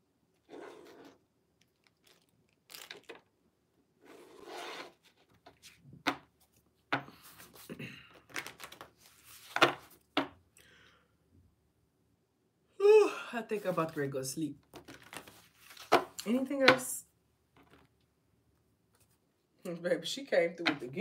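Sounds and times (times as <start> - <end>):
cards shuffling: 2.0 - 3.3, 4.1 - 10.3, 14.7 - 16.8.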